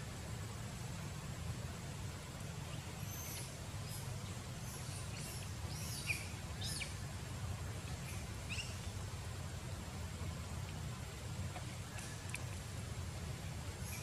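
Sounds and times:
small birds chirping: 2.6s - 7.2s, 7.8s - 12.7s, 13.4s - 14.0s.

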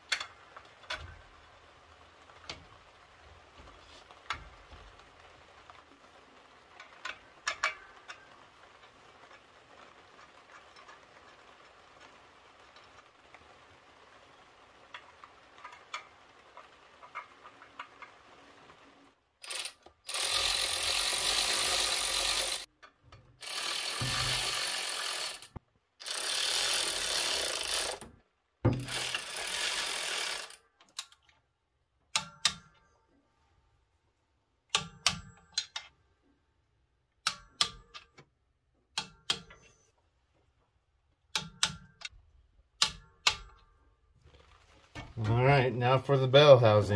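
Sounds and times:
cordless electric ratchet running: 19.4s - 22.7s, 23.4s - 28.1s, 28.7s - 30.6s.

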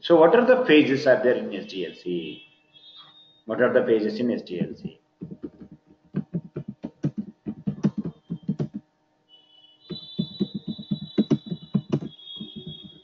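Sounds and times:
keyboard typing: 4.6s - 8.8s, 9.9s - 13.0s
high-pitched whine: 9.4s - 13.0s.

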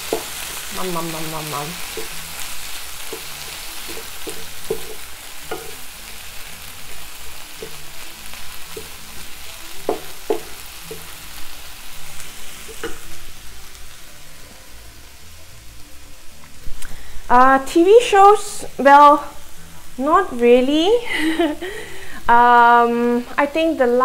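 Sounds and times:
food sizzling in a frying pan: 0.0s - 24.0s
spatula knocking against pan: 3.9s - 5.8s, 9.8s - 11.0s.

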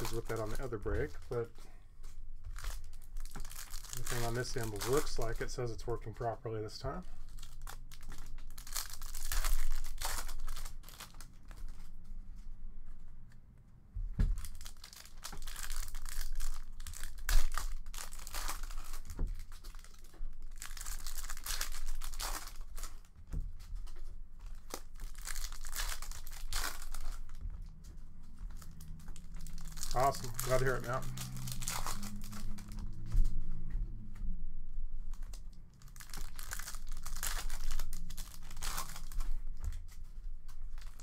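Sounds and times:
foil pack crinkling and tearing: 0.0s - 6.1s, 6.9s - 12.0s, 14.3s - 33.4s, 35.1s - 41.0s.

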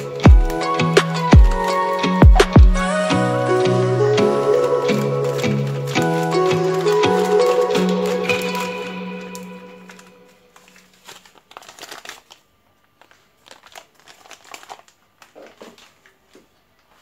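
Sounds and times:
background music: 0.0s - 10.8s
plastic packet crinkling: 4.0s - 17.0s.

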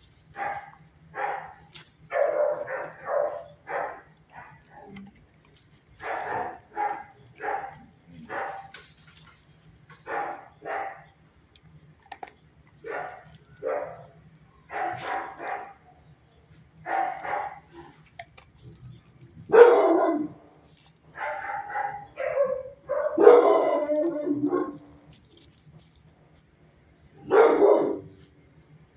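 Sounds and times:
dogs barking: 0.3s - 11.2s, 12.7s - 16.0s, 16.8s - 25.1s, 27.1s - 28.4s.

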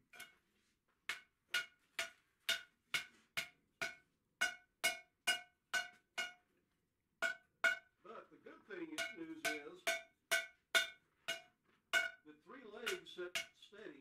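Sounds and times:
hammer striking steel on anvil: 1.1s - 6.4s, 7.2s - 7.9s, 9.0s - 12.2s, 12.8s - 13.7s.

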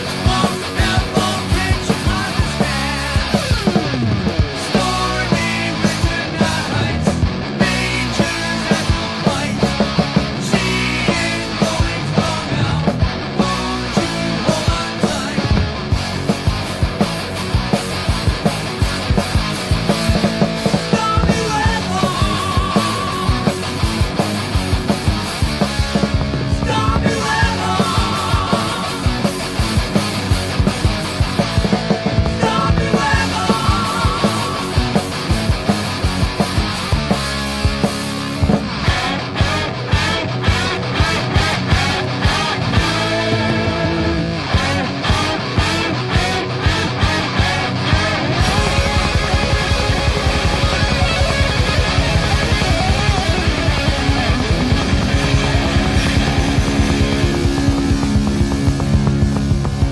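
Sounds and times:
distorted electric guitars: 0.0s - 59.9s
heavy metal band playing: 0.0s - 59.9s
drum strikes: 15.4s - 39.6s, 48.4s - 59.9s.

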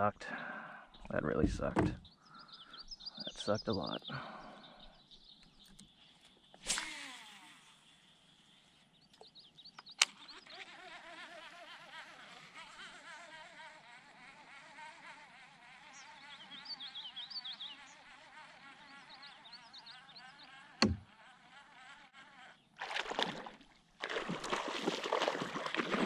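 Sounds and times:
fly buzzing: 5.7s - 8.9s, 9.8s - 26.0s
fish splashing at water surface: 22.8s - 26.0s.

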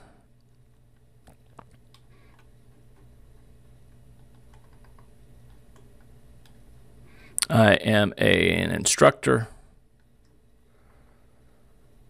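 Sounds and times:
low steady hum: 0.0s - 12.0s
computer mouse clicks: 3.8s - 6.6s.

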